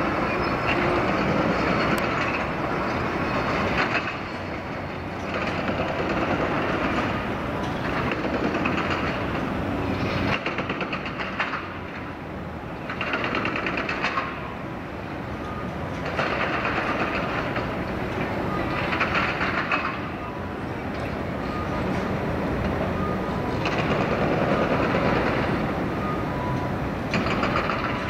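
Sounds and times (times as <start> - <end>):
excavator engines running: 0.0 - 28.0.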